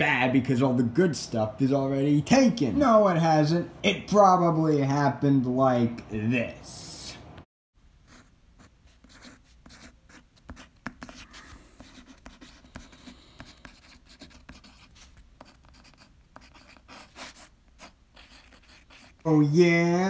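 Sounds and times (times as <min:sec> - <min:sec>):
pencil writing on paper: 0:08.1 - 0:19.2.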